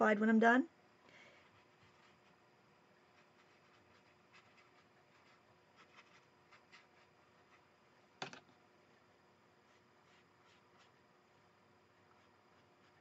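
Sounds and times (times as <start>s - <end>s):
brush strokes on wet paper: 1.4s - 7.8s, 9.5s - 13.0s.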